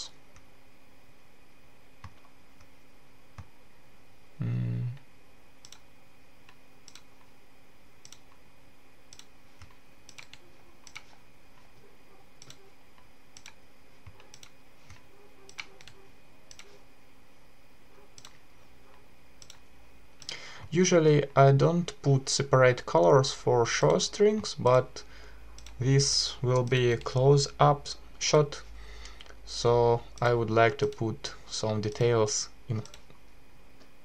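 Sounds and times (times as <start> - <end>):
faint steady hum: 0.0 - 34.0
mouse and keyboard clicks: 9.1 - 11.7, 12.4 - 16.8, 18.2 - 19.6.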